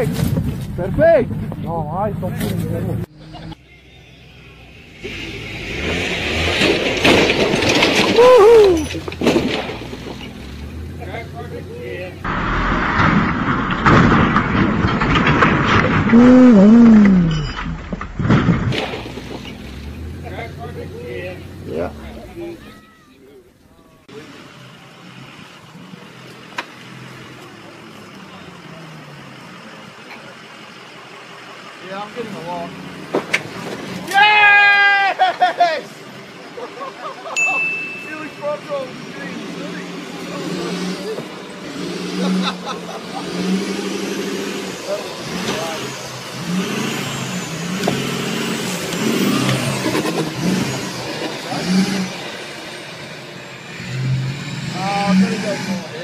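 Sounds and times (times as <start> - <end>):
truck engine running: 0.0 - 22.7, 23.4 - 33.9
pickup truck engine revving hard: 5.0 - 8.7, 38.9 - 56.0.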